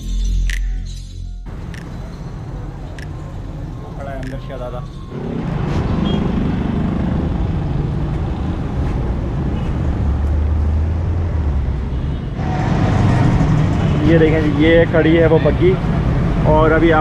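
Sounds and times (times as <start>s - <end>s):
street traffic rumble: 0.0s - 17.0s
low engine drone: 12.4s - 16.9s.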